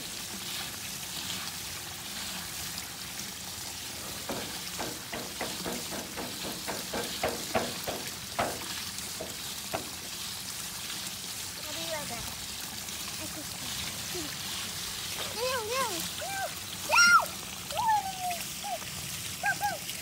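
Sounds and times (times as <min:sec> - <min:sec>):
steady hiss: 0:03.8 - 0:16.9.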